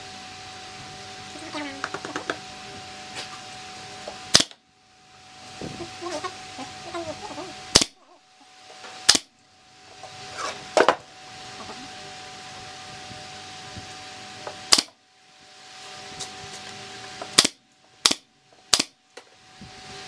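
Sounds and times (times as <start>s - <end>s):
nail gun firing: 4.3s - 4.6s, 7.7s - 8.0s, 9.1s - 9.3s, 14.7s - 15.0s, 17.4s - 19.0s.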